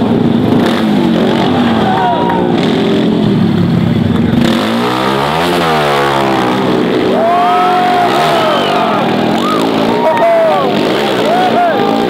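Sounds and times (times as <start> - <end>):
motorcycle engine revving: 0.0 - 12.0
crowd whistling: 7.1 - 12.0.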